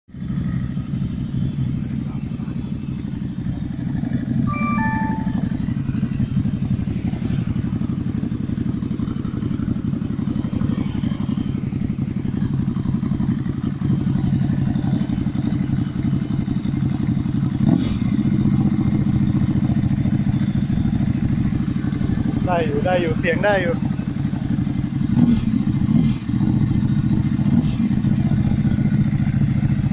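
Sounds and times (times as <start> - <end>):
motorcycle engine idling: 0.1 - 29.9
short high chirps: 4.5 - 5.6.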